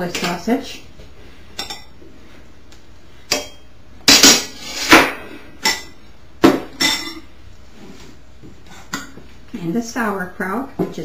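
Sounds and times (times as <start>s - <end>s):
utensils scraping a plate: 4.2s - 5.0s.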